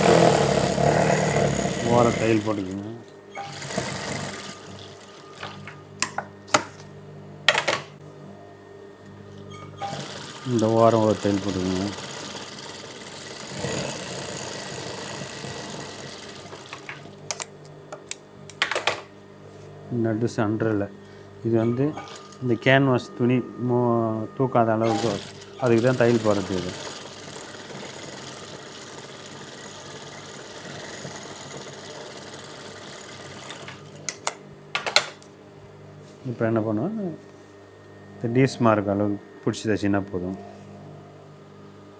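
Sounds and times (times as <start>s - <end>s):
sewing machine stitching: 0.0s - 2.8s, 3.4s - 5.7s, 9.8s - 17.2s, 22.0s - 22.4s, 24.8s - 34.1s.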